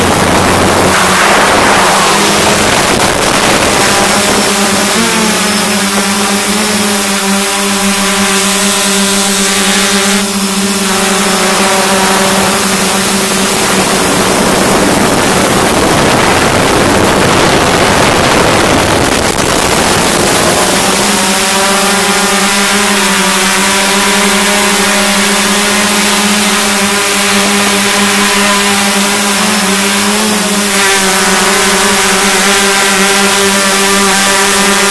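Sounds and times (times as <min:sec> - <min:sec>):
rushing noise: 0:00.0 - 0:07.1
drone motors and propellers humming: 0:00.0 - 0:34.9.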